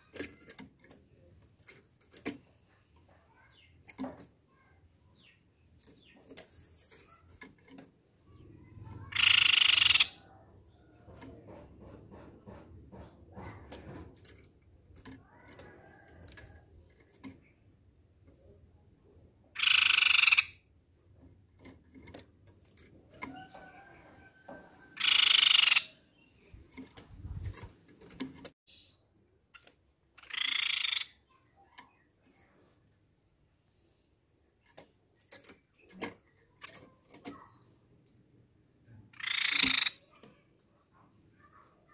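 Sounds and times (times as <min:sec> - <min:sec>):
bird harsh buzzy calls: 0:08.6 - 0:10.3, 0:19.6 - 0:20.7, 0:25.0 - 0:26.1, 0:29.6 - 0:31.4, 0:39.1 - 0:40.2.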